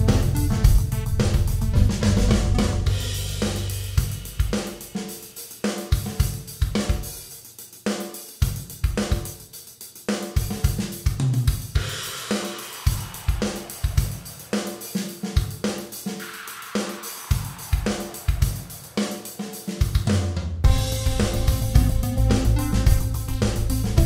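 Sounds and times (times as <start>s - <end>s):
bass notes: 0.0s - 4.3s, 20.7s - 24.0s
drum kit beat with cymbals: 0.0s - 24.0s.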